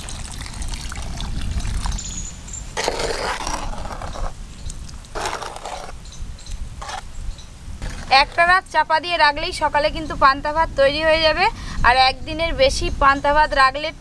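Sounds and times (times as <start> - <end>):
water pouring into a pot: 0.0 - 2.0.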